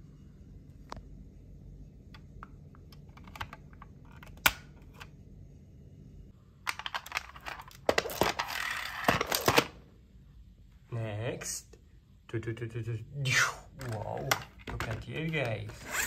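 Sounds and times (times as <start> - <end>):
toys clicking and clattering: 6.6 - 9.7, 13.8 - 16.0.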